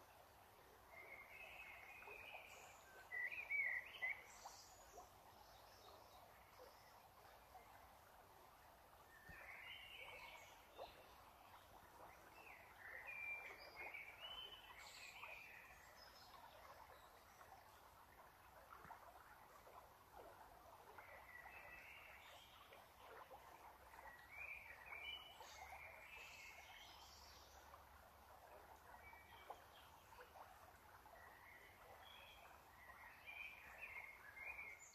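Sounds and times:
low outdoor hiss: 0.0 - 34.9.

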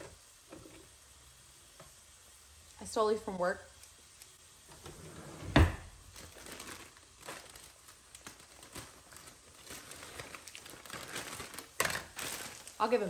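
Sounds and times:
plastic bag crinkling: 5.8 - 13.0.

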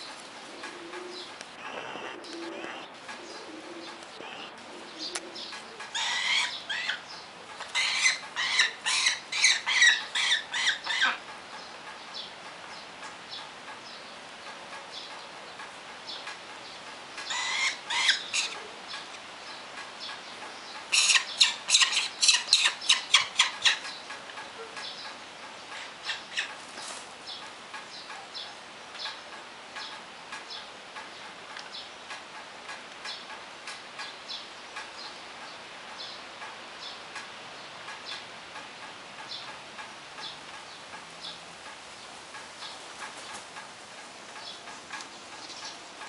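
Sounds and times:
falcons calling harshly: 5.9 - 7.0.

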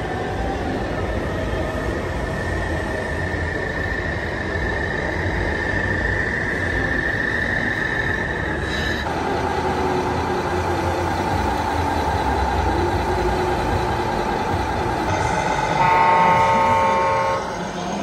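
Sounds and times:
air horn chord: 15.6 - 17.6.

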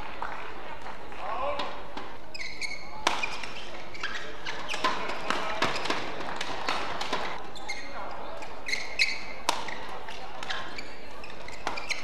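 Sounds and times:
rackets striking shuttlecock: 1.6 - 7.5, 8.4 - 12.0.

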